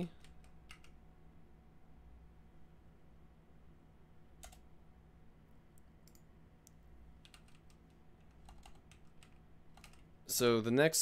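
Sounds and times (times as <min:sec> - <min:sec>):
faint keyboard typing: 0:00.0 - 0:01.0, 0:04.4 - 0:04.7, 0:05.7 - 0:10.2.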